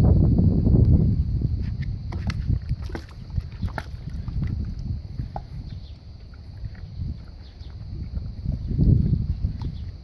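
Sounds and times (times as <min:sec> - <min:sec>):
water splashing: 0:02.1 - 0:06.8.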